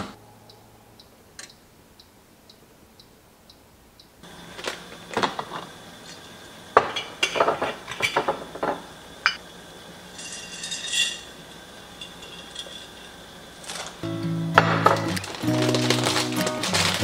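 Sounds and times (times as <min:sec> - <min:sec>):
glass jars clinking: 0:06.8 - 0:09.4, 0:10.2 - 0:14.0, 0:14.6 - 0:17.0
plastic bag rustling: 0:12.1 - 0:14.0, 0:14.8 - 0:17.0.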